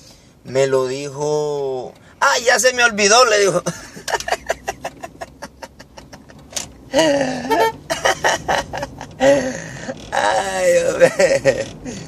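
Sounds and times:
man laughing hard: 3.6 - 9.9, 10.9 - 11.7.

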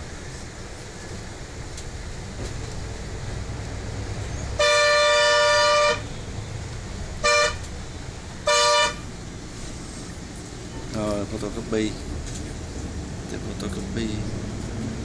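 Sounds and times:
vehicle driving rumble: 0.0 - 15.0
vehicle horn honking: 4.6 - 6.1, 7.2 - 7.6, 8.4 - 9.0.

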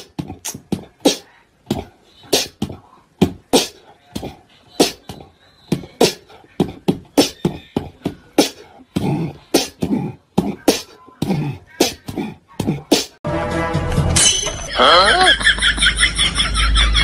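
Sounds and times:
beatboxing: 0.0 - 13.2.

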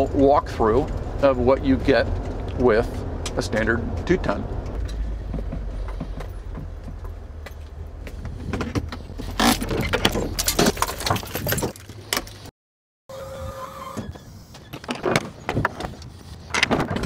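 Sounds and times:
truck engine rumbling: 0.0 - 12.5.

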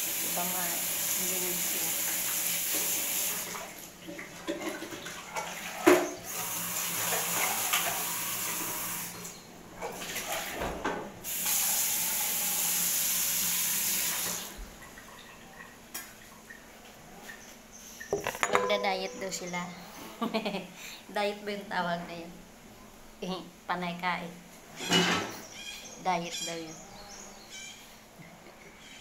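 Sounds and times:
water running from tap: 0.0 - 15.6
knocks and clinks: 18.2 - 19.6.

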